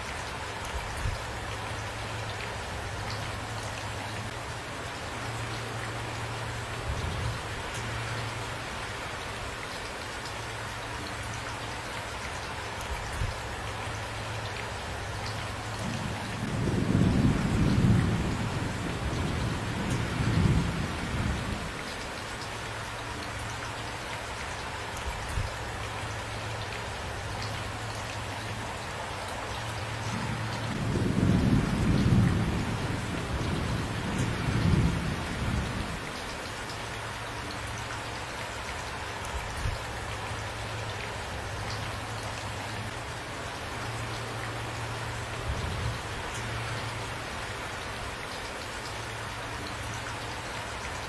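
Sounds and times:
steady rainfall: 0.0s - 51.0s
low rolls of thunder: 15.8s - 21.7s, 30.1s - 36.0s.

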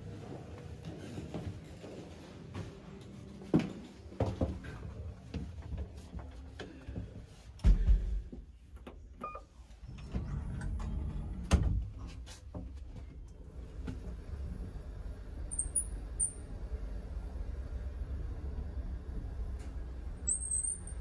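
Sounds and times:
elevator car humming: 13.3s - 21.0s.

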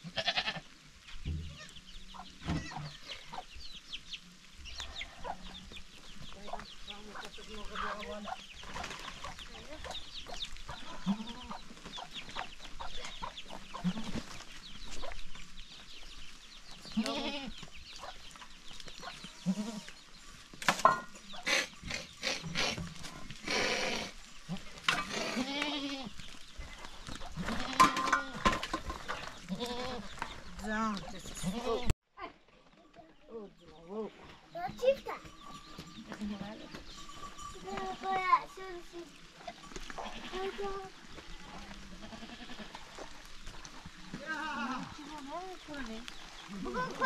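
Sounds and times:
goats bleating: 0.0s - 0.8s, 10.8s - 11.6s, 13.8s - 14.2s, 16.9s - 17.6s, 19.4s - 20.0s, 21.4s - 26.2s, 27.4s - 28.5s, 29.4s - 30.2s, 31.4s - 31.9s, 36.0s - 36.8s, 39.4s - 43.2s, 44.2s - 45.2s
hens clucking: 1.3s - 15.5s, 20.8s - 31.9s.

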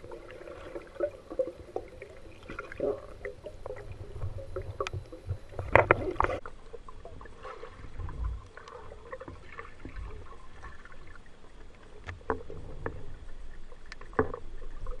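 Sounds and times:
low underwater rumble: 0.0s - 15.0s
underwater clicks and knocks: 3.2s - 7.2s, 12.0s - 15.0s.

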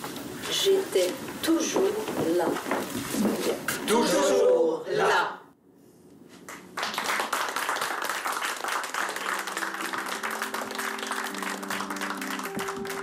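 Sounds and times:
audience applause: 6.5s - 13.0s
music with held notes: 9.2s - 13.0s.

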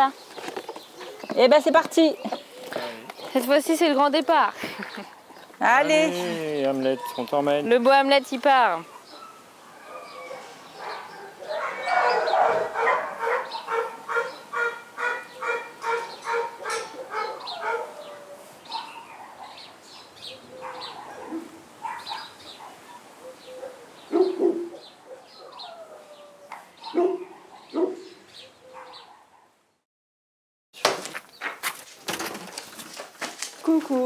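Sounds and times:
birds chirping: 0.0s - 29.8s
dog yapping: 9.8s - 19.6s, 20.6s - 23.0s, 23.6s - 26.1s, 26.8s - 28.1s.

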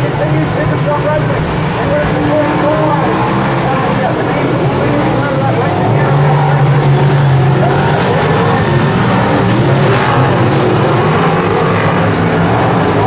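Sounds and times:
race car engines: 0.0s - 13.0s.

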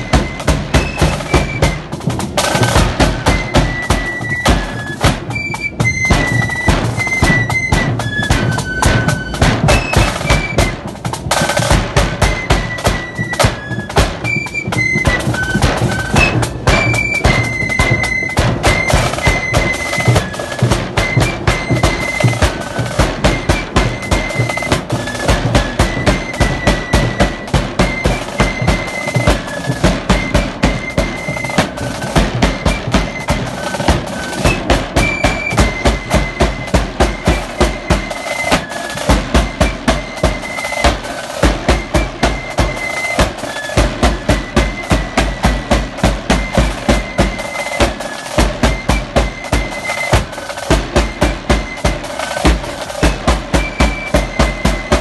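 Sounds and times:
flute melody: 0.0s - 55.0s
snare drums rattling: 0.0s - 55.0s
bass drum beat: 5.1s - 38.1s.

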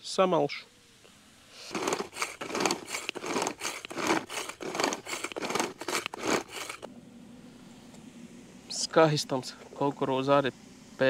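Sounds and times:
hand grinder crunching kernels: 1.6s - 6.9s.

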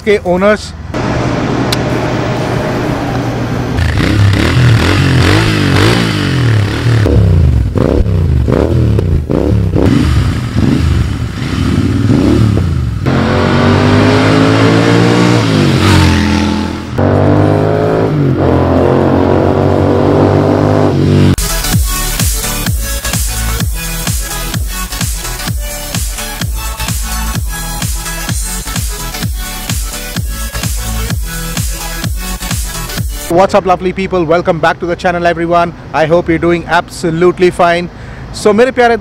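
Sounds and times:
motorcycle accelerating through gears: 1.0s - 21.4s
motorcycle engine revving: 1.0s - 33.2s.

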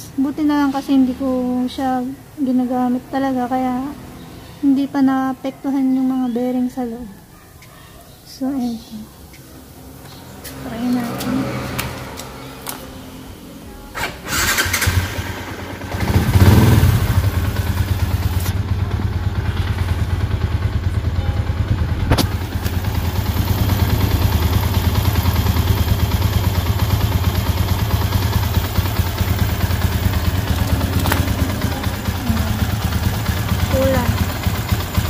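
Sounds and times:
motorcycle engine starting and idling: 10.0s - 35.0s.

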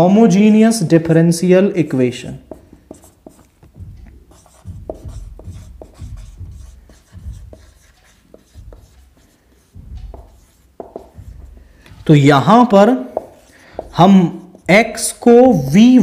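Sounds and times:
pen scratching on paper: 2.4s - 12.0s, 13.1s - 16.0s.

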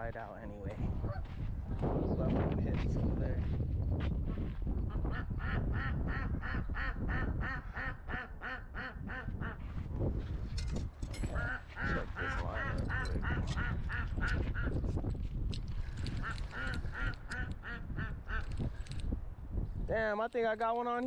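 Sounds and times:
ducks quacking: 5.0s - 9.6s, 11.3s - 14.8s, 16.2s - 18.5s.

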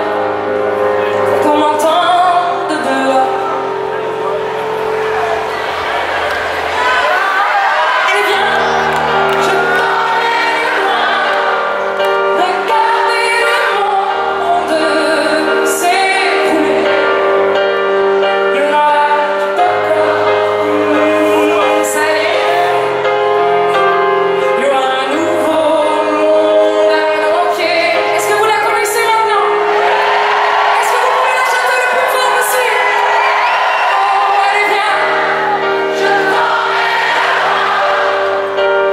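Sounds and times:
piano chords: 0.0s - 38.9s
woman singing: 1.3s - 3.6s, 8.1s - 17.7s, 18.3s - 23.0s, 24.4s - 29.6s, 30.8s - 33.1s, 33.9s - 36.7s.

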